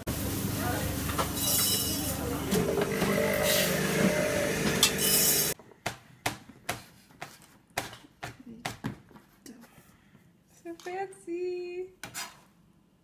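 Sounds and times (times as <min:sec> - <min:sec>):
busy shop background noise: 0:00.0 - 0:08.4.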